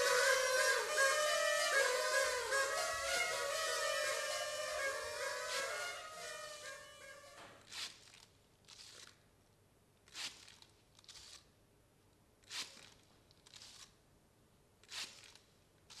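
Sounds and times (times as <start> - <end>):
soft long hiss: 0.0 - 7.8.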